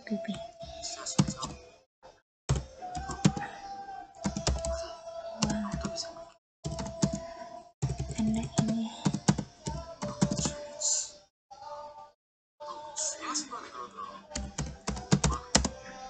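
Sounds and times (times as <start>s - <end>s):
computer keyboard typing: 1.2s - 1.6s, 2.5s - 3.5s, 4.2s - 4.8s, 5.4s - 6.0s, 6.7s - 10.6s, 14.4s - 15.8s.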